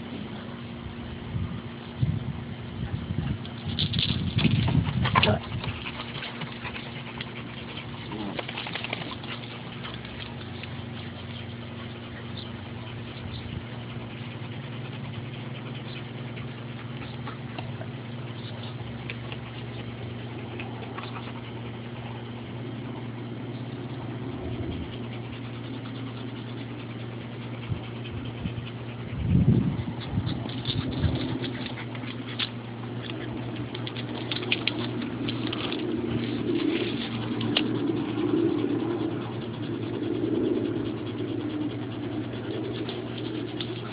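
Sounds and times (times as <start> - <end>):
low hum: 0.0 - 43.9
dog panting: 2.7 - 43.9
paws scrabbling on gravel: 3.3 - 12.4, 30.0 - 38.3.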